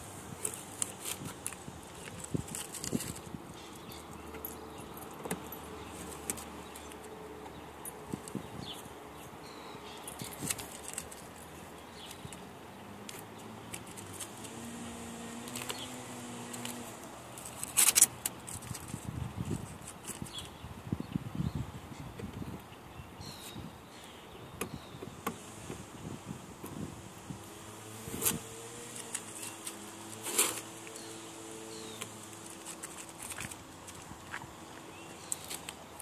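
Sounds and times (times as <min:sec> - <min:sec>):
masking tape peeling and crackling: 0:00.0 - 0:04.0, 0:13.0 - 0:20.4, 0:26.5 - 0:36.0.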